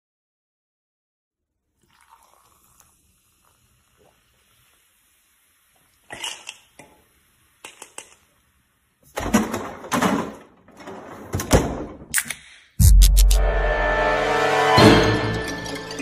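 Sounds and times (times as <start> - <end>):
kitchen clicks and clatters: 6.1 - 6.9, 7.6 - 8.2, 9.1 - 11.7
refrigerator drawer scraping: 9.2 - 11.5.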